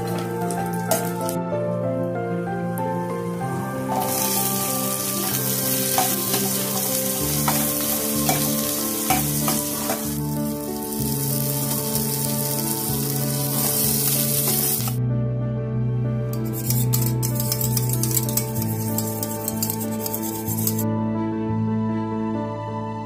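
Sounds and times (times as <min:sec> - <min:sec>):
onions and nuts sizzling in oil: 0:00.0 - 0:01.4, 0:03.1 - 0:15.0, 0:16.4 - 0:20.8
spoon clinking against pan: 0:05.9 - 0:10.1, 0:16.4 - 0:20.8.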